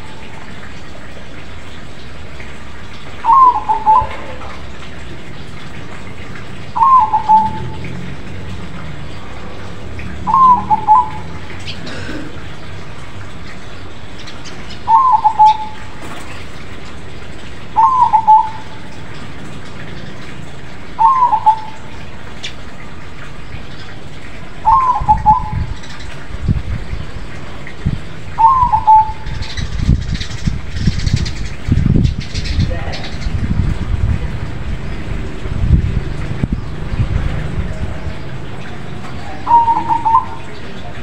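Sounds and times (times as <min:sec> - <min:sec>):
dove cooing: 0:03.2 - 0:04.7, 0:06.8 - 0:07.8, 0:10.2 - 0:12.4, 0:14.8 - 0:16.0, 0:17.8 - 0:18.9, 0:21.0 - 0:21.9, 0:24.6 - 0:25.6, 0:28.4 - 0:29.3, 0:39.1 - 0:40.8.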